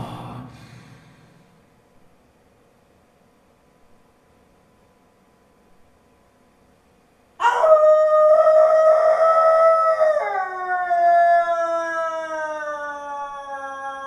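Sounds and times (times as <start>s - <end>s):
lower wolf howl gliding down: 7.4s - 14.0s
wolf howling: 7.4s - 14.0s.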